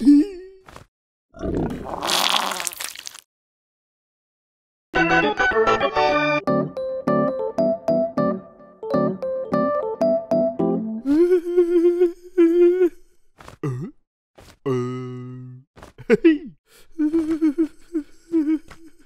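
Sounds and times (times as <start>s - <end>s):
cartoon gibberish hums and grunts: 14.7s - 19.0s.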